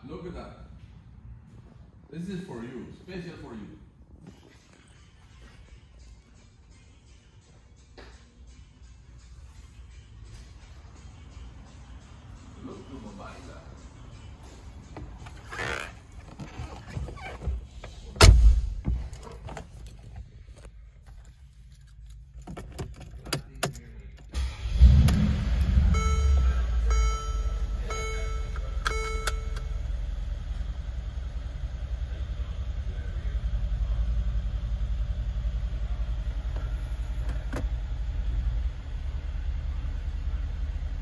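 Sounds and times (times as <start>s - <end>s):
car engine starting and idling: 9.6s - 41.0s
dashboard warning chime: 25.8s - 30.1s.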